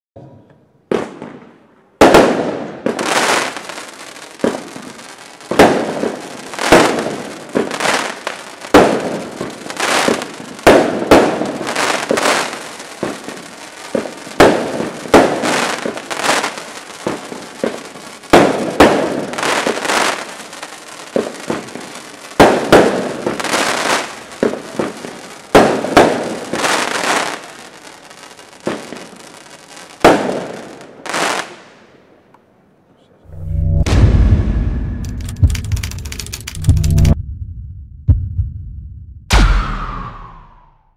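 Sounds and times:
fireworks shots banging: 0.9s - 3.0s, 5.5s - 8.1s, 8.7s - 16.0s, 17.0s - 20.2s, 21.1s - 27.0s, 30.0s - 30.6s.

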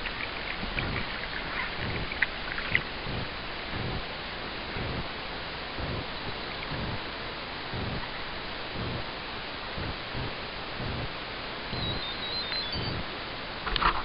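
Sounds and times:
water lapping against inflatable: 0.0s - 4.0s
steady hiss: 0.0s - 14.0s.

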